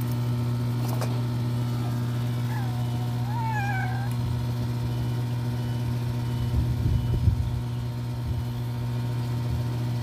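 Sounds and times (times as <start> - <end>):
low machine hum: 0.0 - 10.0
cat meowing: 1.8 - 4.2.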